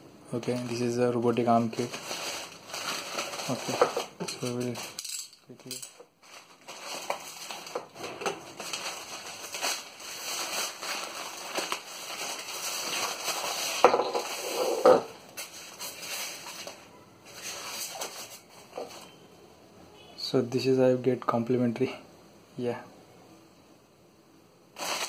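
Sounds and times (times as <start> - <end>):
plastic crinkling and rustling: 0.3 - 19.2, 24.8 - 25.0
foam box crackling: 0.4 - 4.9, 6.2 - 14.5, 24.8 - 25.0.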